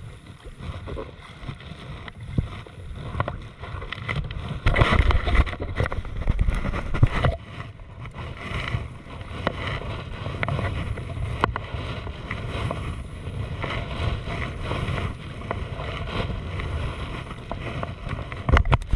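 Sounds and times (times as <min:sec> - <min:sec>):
water splashing against kayak: 0:00.0 - 0:18.9
wind rumble on microphone: 0:00.0 - 0:18.9.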